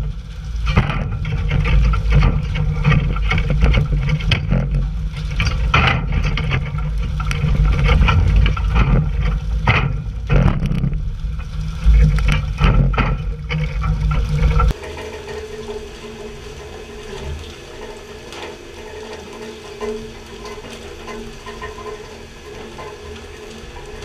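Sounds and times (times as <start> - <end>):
deep rumble: 0.0 - 14.8
steady drone: 0.0 - 22.9
faint water hiss: 0.0 - 24.0
water splashing against boat: 0.0 - 24.0.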